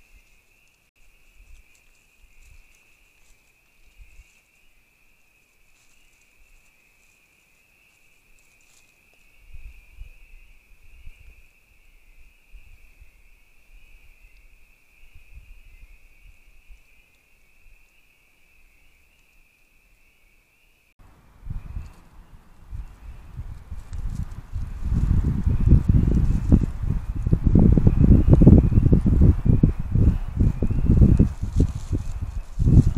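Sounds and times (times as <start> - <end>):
faint rustling: 5.4 - 9.3, 31.2 - 32.9.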